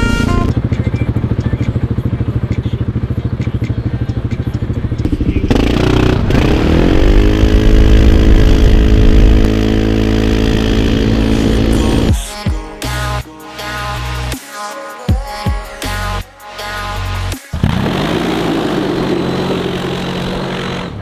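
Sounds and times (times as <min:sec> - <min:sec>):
quad engine chugging and revving: 0:00.0 - 0:12.2, 0:16.9 - 0:21.0.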